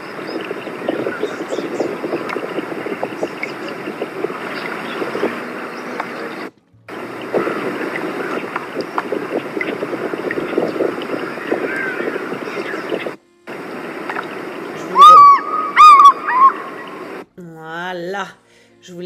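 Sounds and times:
water and wind noise: 0.0 - 17.2
faint eagle calls: 11.3 - 13.2, 14.7 - 17.2.

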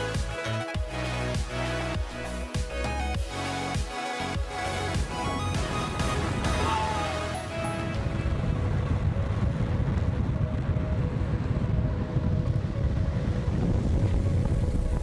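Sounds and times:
wind buffeting microphone: 5.0 - 15.0
longboard wheels rolling on asphalt: 7.6 - 15.0.

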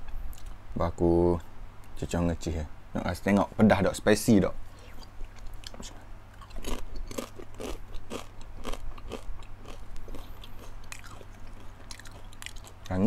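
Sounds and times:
chip crunching while chewed: 5.3 - 13.0.

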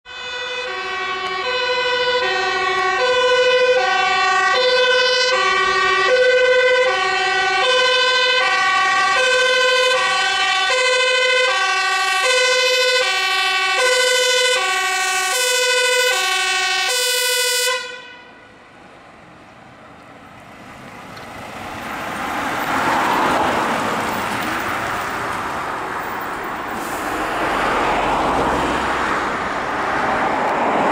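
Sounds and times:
two-tone siren: 0.0 - 18.6
truck engine and tyres passing: 0.1 - 30.9.

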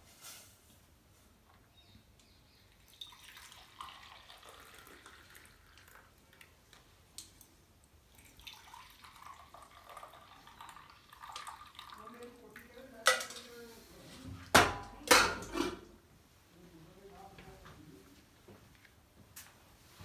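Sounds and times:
liquid trickling and splashing: 2.7 - 6.6, 8.0 - 12.8.

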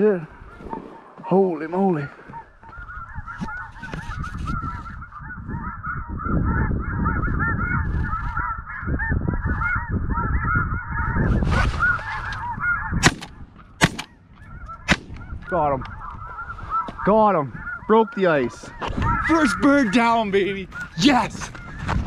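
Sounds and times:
snow geese honking: 0.0 - 22.0
shotgun shots: 13.0 - 14.2, 14.9 - 15.2.

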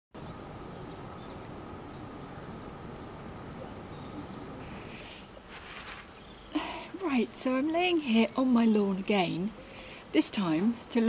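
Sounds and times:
faint bird chirps: 0.2 - 5.4
steady low background noise: 0.2 - 11.0
brief rustle: 5.0 - 6.2.

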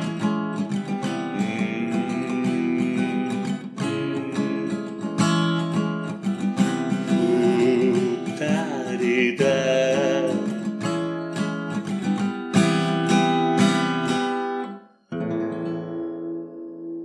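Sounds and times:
acoustic guitar strumming: 0.0 - 17.0
person singing: 1.0 - 5.1, 7.0 - 10.7.

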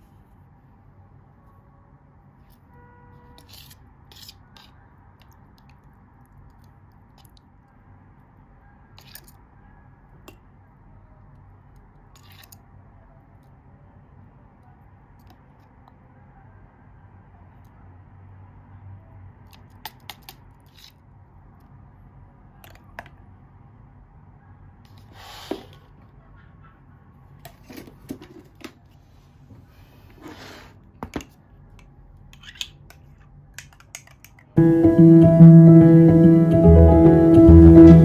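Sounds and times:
piano music: 34.6 - 38.0.

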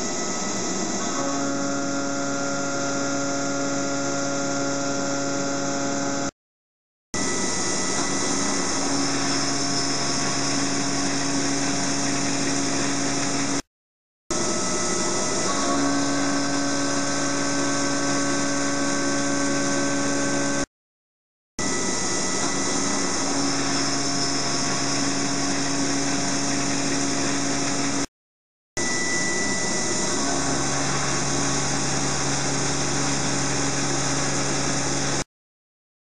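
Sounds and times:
milling machine cutting steel: 7.2 - 13.6, 14.3 - 20.7, 21.6 - 28.1, 28.8 - 35.2.

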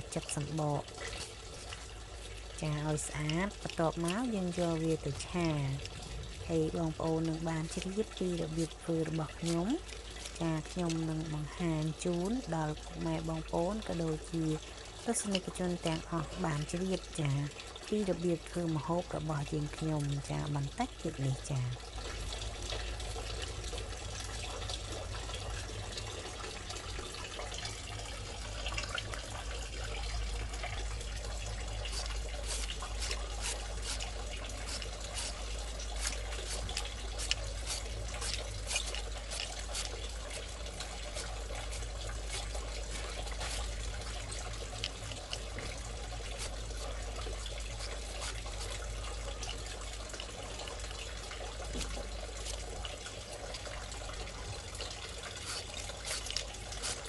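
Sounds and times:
knife scraping gourd skin: 31.9 - 43.8, 47.8 - 48.8, 55.4 - 57.0.

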